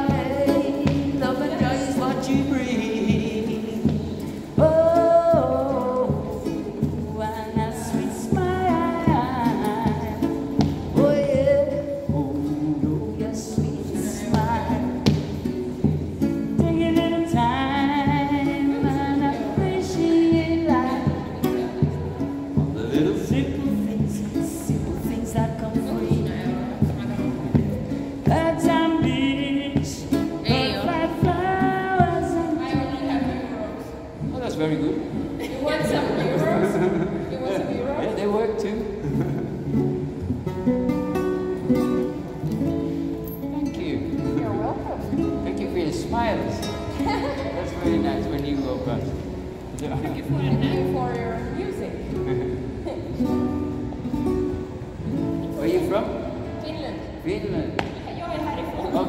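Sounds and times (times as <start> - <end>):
man singing: 0.0 - 6.6, 7.6 - 15.3, 22.6 - 27.6, 28.2 - 32.4
acoustic guitar strumming: 0.0 - 57.2.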